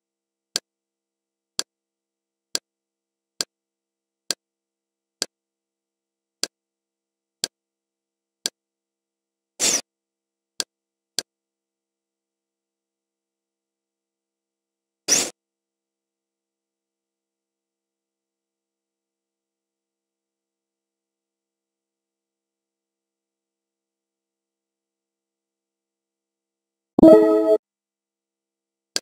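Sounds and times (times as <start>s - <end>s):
menu interface clicks: 27.0s - 27.6s.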